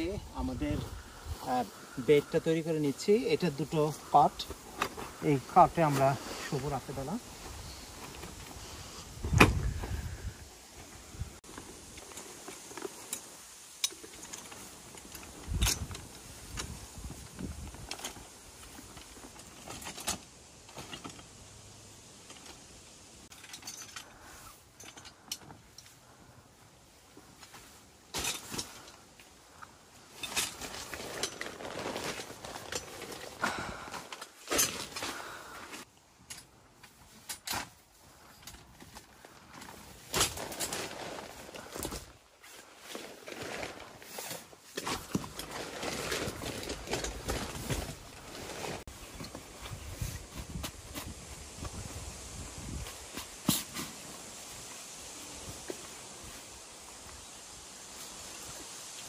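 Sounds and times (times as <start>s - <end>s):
rustling and shuffling on groundsheet: 0.0s - 9.2s, 25.2s - 35.9s, 36.8s - 59.0s.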